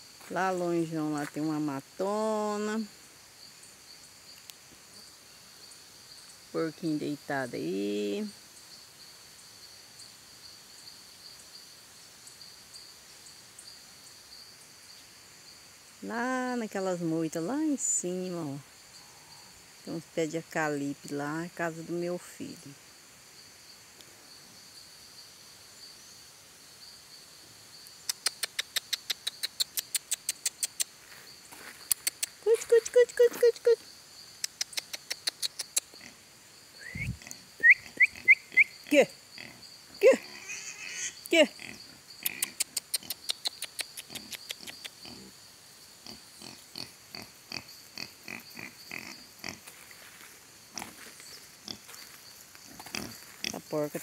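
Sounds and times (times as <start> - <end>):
high-pitched insect drone: 36.0 - 54.0
pigs grunting: 52.8 - 53.6.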